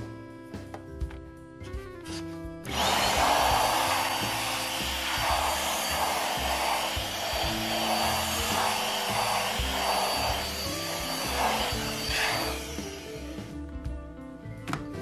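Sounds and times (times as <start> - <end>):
electric air blower rushing: 2.7 - 13.6.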